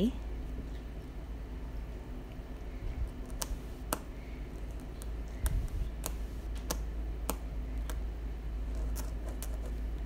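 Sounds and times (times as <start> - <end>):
low steady hum: 0.0 - 10.0
marker tapping and scratching: 3.2 - 8.0, 8.6 - 10.0.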